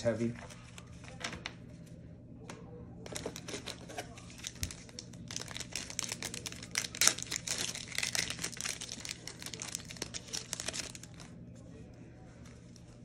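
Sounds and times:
plastic wrapper crinkling and tearing: 3.1s - 11.4s.

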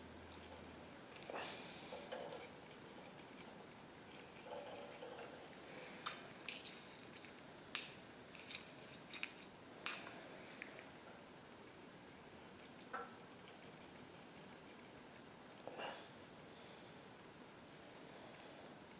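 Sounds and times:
brush scratching on metal rod: 0.3s - 5.4s.

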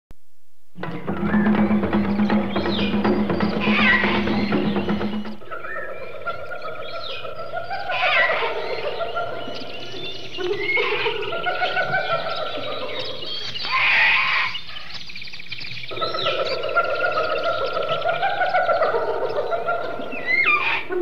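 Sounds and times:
steady trilling: 0.8s - 5.5s
bird calls and chirps: 0.8s - 21.0s.

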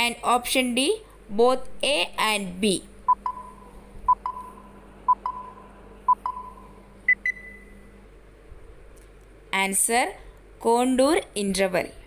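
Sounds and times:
higher-pitched beeps: 3.1s - 7.7s
short electronic beeps: 3.1s - 7.7s.

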